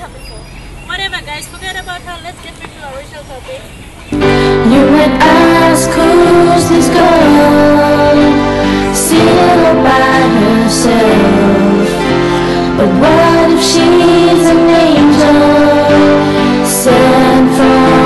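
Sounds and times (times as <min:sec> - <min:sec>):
slow tender song: 0:04.1 - 0:18.0.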